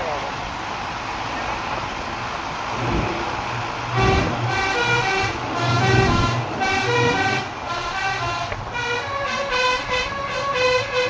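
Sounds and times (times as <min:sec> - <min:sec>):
musical vehicle horn tune: 0:03.9 - 0:11.0.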